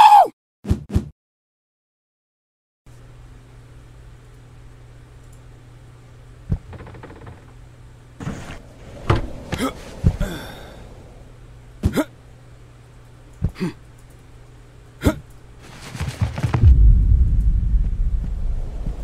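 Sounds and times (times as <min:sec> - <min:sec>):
deep low rumble: 0:08.5 - 0:11.8, 0:16.4 - 0:19.0.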